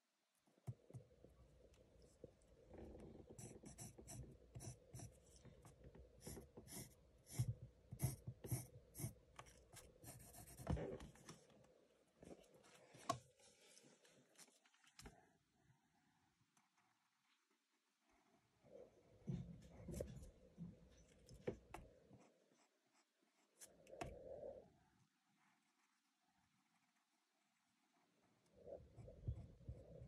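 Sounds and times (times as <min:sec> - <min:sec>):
pen scratching on paper: 0:03.0 - 0:11.0.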